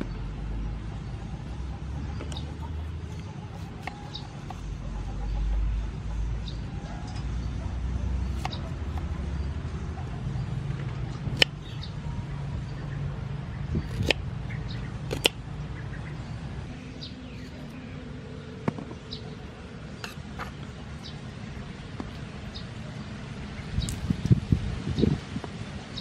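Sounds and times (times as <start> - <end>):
knife cutting broccoli: 2.6 - 4.6, 8.3 - 9.1, 11.3 - 11.6, 13.8 - 14.2, 15.1 - 15.4, 20.0 - 20.5.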